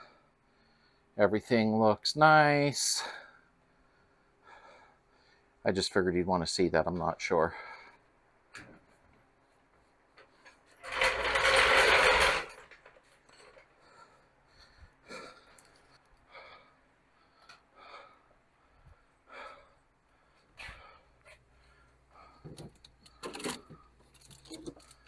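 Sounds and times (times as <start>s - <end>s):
floor jack rolling on concrete: 10.4s - 13.7s.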